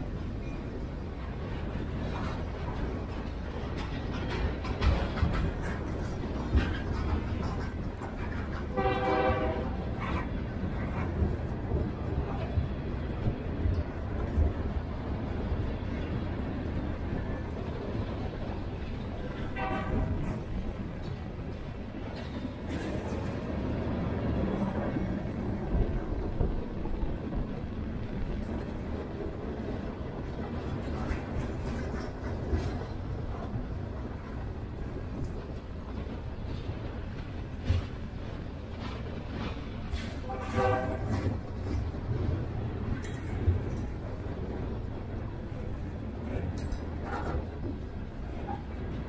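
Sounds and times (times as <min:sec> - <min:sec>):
freight train wheels rumbling: 0:00.0 - 0:49.0
train horn blast: 0:08.7 - 0:09.9, 0:19.5 - 0:20.2, 0:40.2 - 0:41.3.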